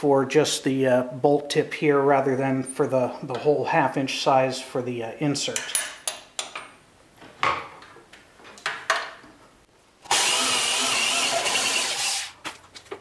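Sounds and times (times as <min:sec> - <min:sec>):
tools being handled knocks: 0:05.5 - 0:06.8
electric drill boring into wood: 0:10.1 - 0:12.4.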